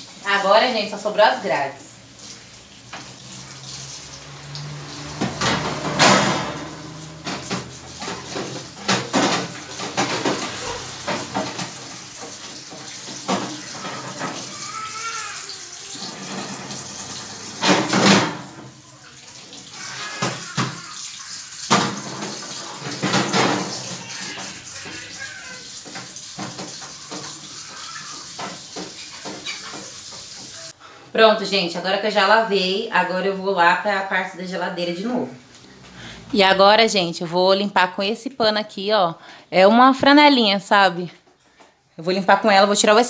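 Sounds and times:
tap water splashing into sink: 0:02.1 - 0:30.7
metal rack clanking on sink: 0:05.1 - 0:14.7, 0:16.0 - 0:18.8, 0:21.7 - 0:24.6.

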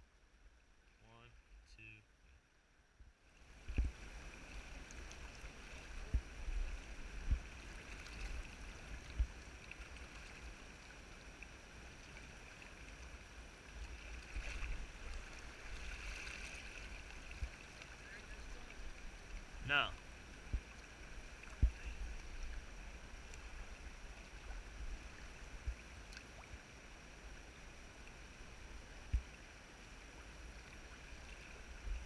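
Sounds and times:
river water rushing: 0:03.4 - 0:32.0.

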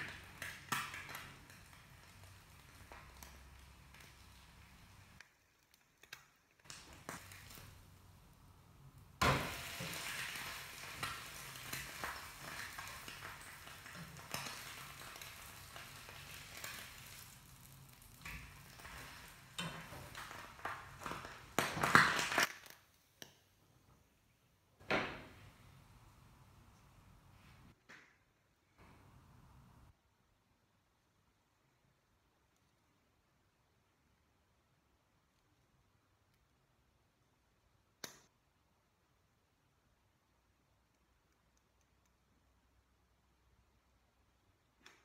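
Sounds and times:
egg sizzling in oil: 0:00.0 - 0:22.5.

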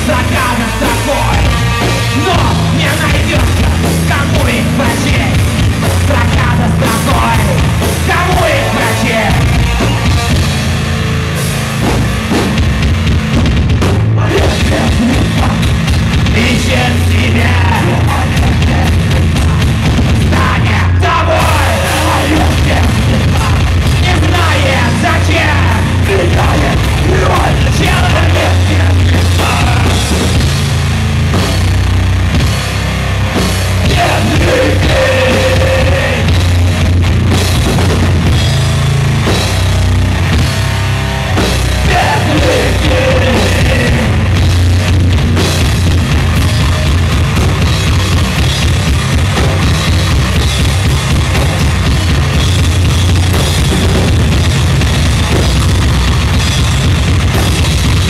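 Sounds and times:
bass guitar: 0:00.0 - 0:58.0
drum kit: 0:00.0 - 0:58.0
heavy rock band playing live: 0:00.0 - 0:58.0
person singing: 0:16.3 - 0:30.1, 0:33.9 - 0:36.4, 0:41.8 - 0:44.3.

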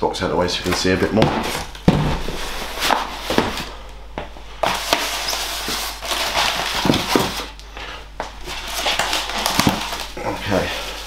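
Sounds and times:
packaging rustling: 0:04.6 - 0:07.6, 0:08.2 - 0:11.0.

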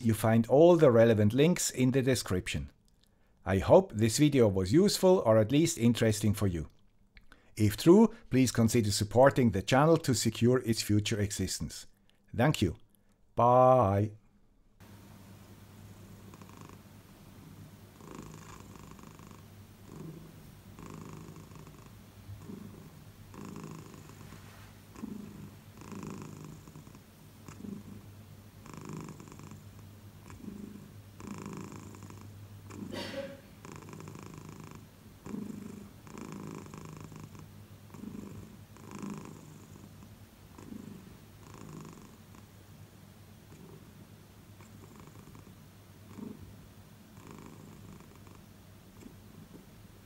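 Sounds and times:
cat purring: 0:14.8 - 0:42.6, 0:43.4 - 0:50.0.

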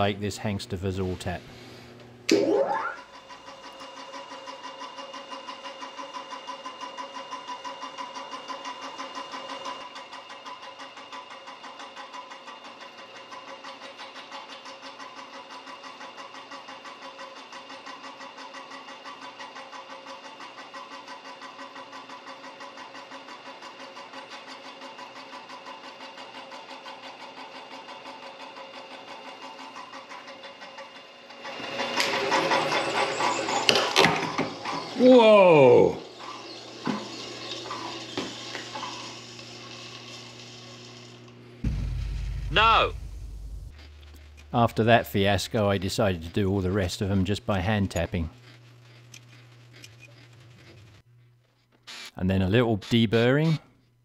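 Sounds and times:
milling machine humming: 0:21.5 - 0:51.0.

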